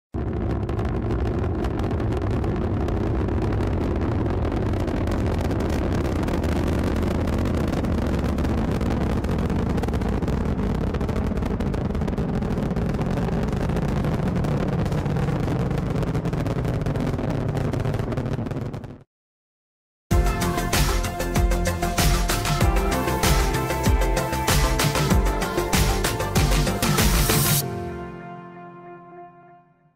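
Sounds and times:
rocket launch roar: 0:00.2 - 0:19.0.

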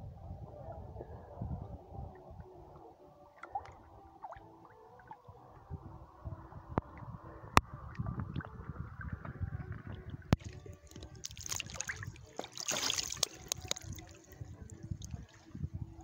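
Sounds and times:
waves lapping and gurgling: 0:10.4 - 0:14.3
hissing splash: 0:10.9 - 0:14.0.

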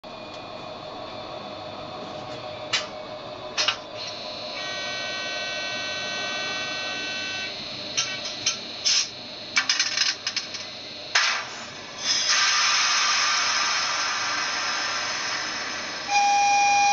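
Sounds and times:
steady hum: 0:00.0 - 0:16.9
multi-tone whine: 0:00.1 - 0:16.9.

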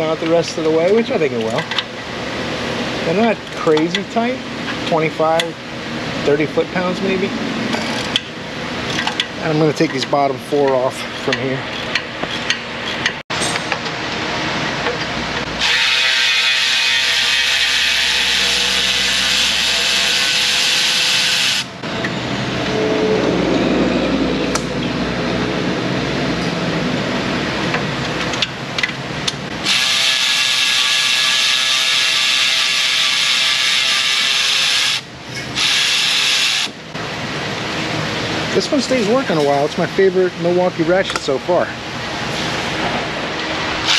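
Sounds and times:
electric ratchet spinning bolts: 0:29.6 - 0:36.7.

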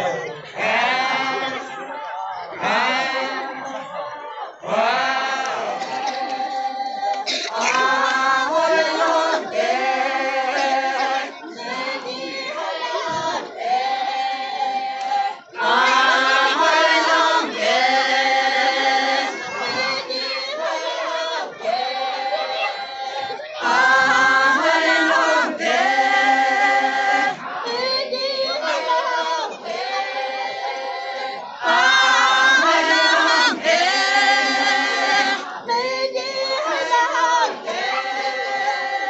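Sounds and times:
women singing unaccompanied: 0:00.0 - 0:39.0.

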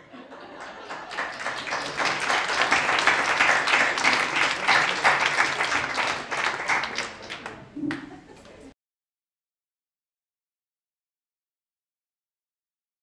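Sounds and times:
audience applauding: 0:00.4 - 0:08.2.

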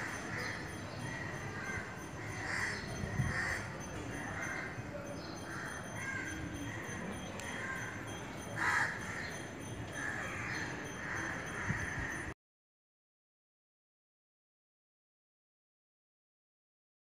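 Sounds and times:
crows cawing: 0:00.0 - 0:12.3.

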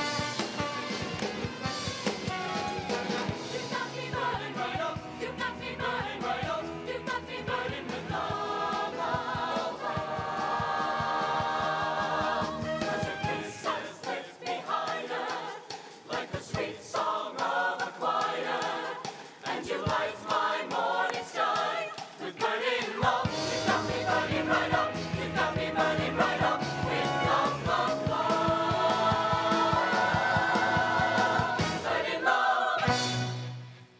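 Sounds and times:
instrumental accompaniment: 0:00.0 - 0:15.4, 0:32.8 - 0:33.9
choir singing in harmony: 0:02.5 - 0:33.6.

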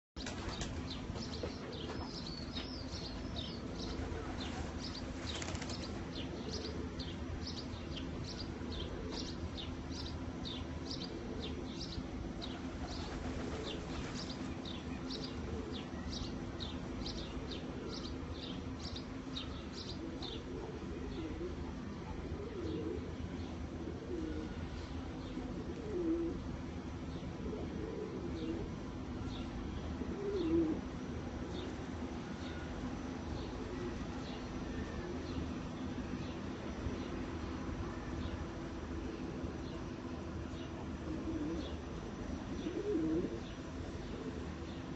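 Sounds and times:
pigeons cooing: 0:08.7 - 0:09.4, 0:19.9 - 0:24.6, 0:25.4 - 0:26.5, 0:27.4 - 0:28.8, 0:30.0 - 0:31.0, 0:41.0 - 0:41.8, 0:42.5 - 0:44.5.

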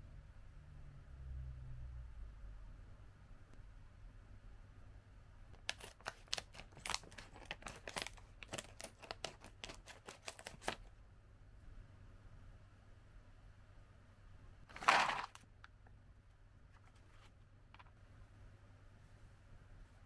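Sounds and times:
scissors snipping foil bag: 0:05.6 - 0:10.8
foil bag crinkling: 0:05.6 - 0:10.9, 0:14.7 - 0:15.4.

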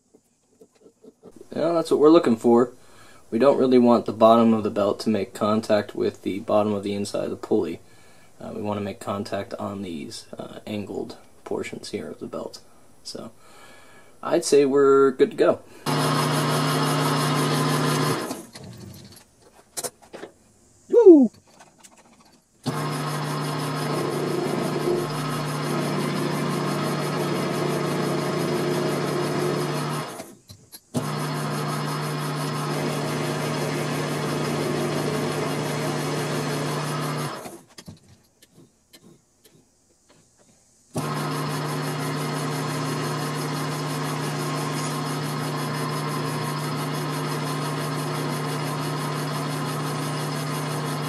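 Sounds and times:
metal lathe running: 0:15.9 - 0:18.4, 0:22.7 - 0:30.2, 0:31.0 - 0:37.5, 0:41.0 - 0:51.0.

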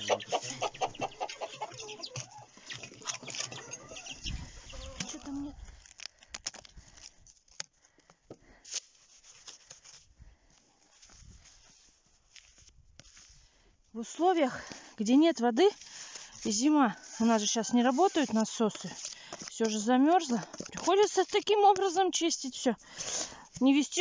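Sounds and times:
chickens and chicks peeping: 0:00.0 - 0:05.6
snow scraping plastic dish: 0:15.8 - 0:22.1.

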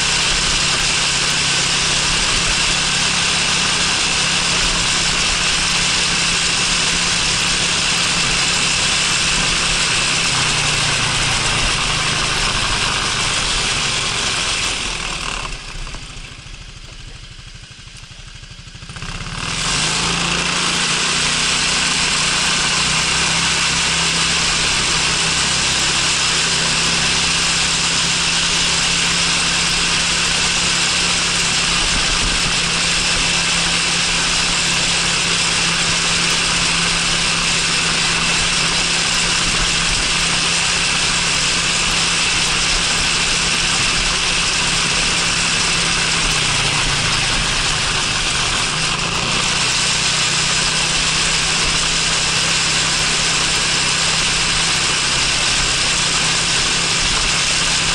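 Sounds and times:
scooter engine running: 0:00.0 - 0:57.9.

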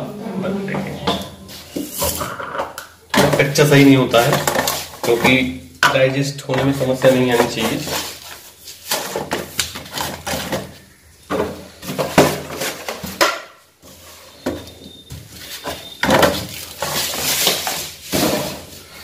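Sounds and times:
plastic jars clicking and knocking: 0:00.8 - 0:08.1
scraping rustle: 0:06.7 - 0:10.6, 0:15.3 - 0:19.0.

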